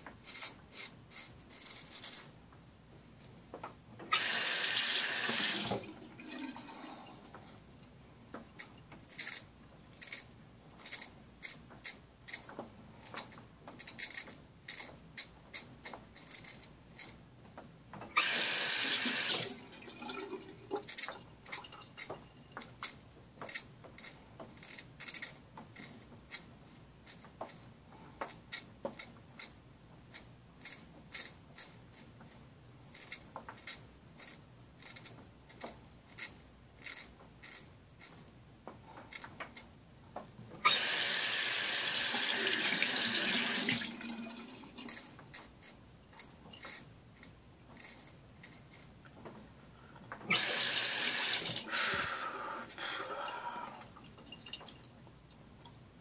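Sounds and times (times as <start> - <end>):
razor scraping stubble: 44.8 - 49.0.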